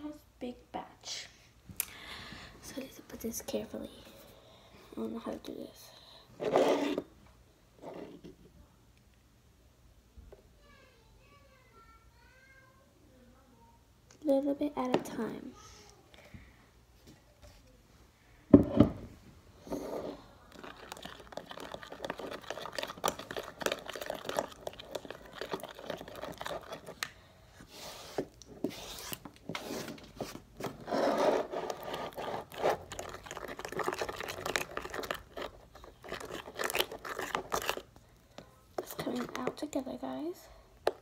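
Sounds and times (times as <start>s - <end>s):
plastic spoon stirring slime: 6.4s - 7.2s, 19.6s - 40.2s, 40.8s - 41.0s.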